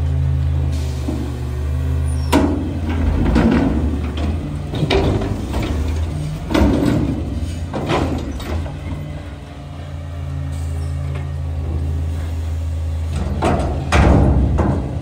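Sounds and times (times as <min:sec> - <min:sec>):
garbage truck engine running: 0:00.0 - 0:15.0
metal bangs and clunks: 0:02.2 - 0:09.3, 0:13.1 - 0:15.0.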